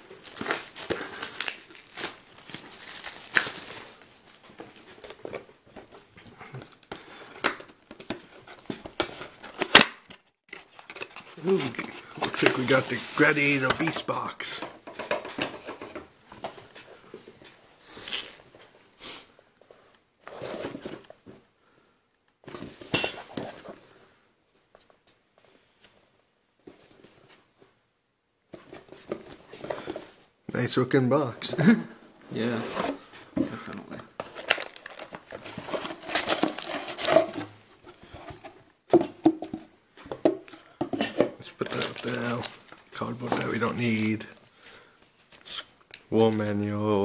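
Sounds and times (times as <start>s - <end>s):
cardboard packaging rustling: 0.0s - 14.6s, 32.4s - 38.7s, 41.4s - 45.4s
cardboard box rustling and scraping: 32.4s - 33.4s, 34.2s - 38.6s.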